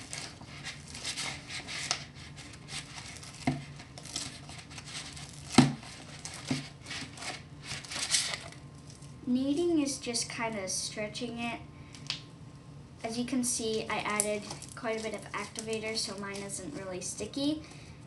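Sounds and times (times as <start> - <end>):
slime squelching: 0.0 - 9.2, 13.7 - 17.0.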